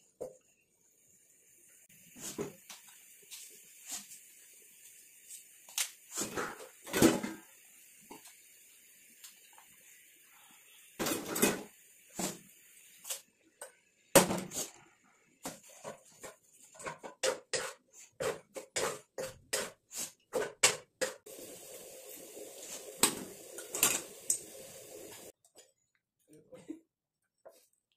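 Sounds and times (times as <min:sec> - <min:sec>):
stir-fry sizzling: 0:00.0 - 0:25.4
spatula scraping a wok: 0:06.1 - 0:07.5, 0:15.5 - 0:20.8.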